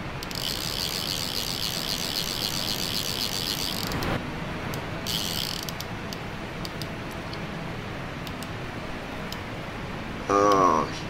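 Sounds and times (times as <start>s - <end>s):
fishing reel ratcheting: 0.2s - 4.2s, 5.1s - 5.9s.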